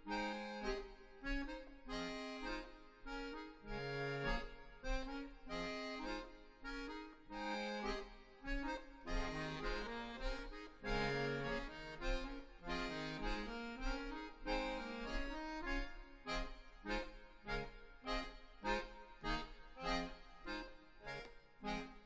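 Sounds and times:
accordions playing pulsing chords: 0.0 - 22.0.

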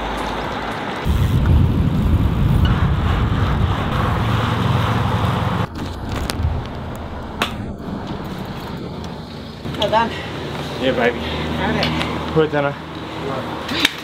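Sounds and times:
wind rumble: 0.0 - 9.7
quiet street sound: 0.0 - 14.0
road noise: 0.0 - 14.0.

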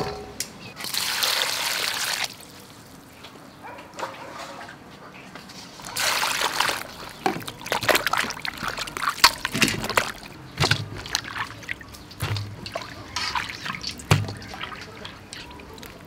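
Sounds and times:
water splashing and trickling: 0.8 - 3.2, 5.5 - 16.0
water dripping: 6.0 - 16.0.

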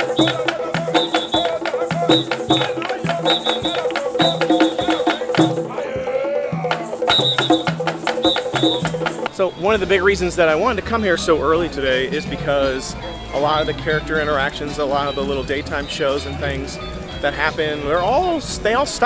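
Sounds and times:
hand drums playing: 0.0 - 9.4.

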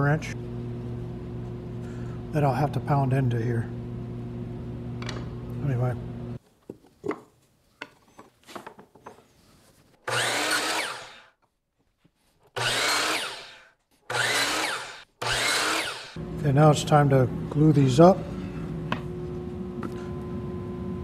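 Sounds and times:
miter saw cutting wood: 10.1 - 11.3, 12.6 - 16.2.

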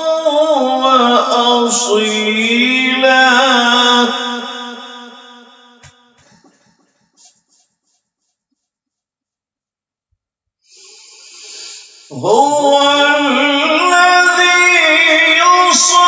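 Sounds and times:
man reciting melodically: 0.0 - 5.4, 12.1 - 16.0
in-breath: 10.6 - 12.2.

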